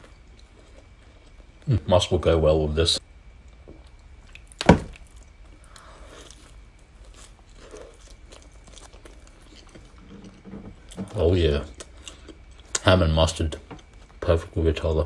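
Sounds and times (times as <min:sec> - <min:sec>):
soft chewing: 0:00.0 - 0:01.8, 0:03.4 - 0:12.9
bread bun eating: 0:03.5 - 0:12.8.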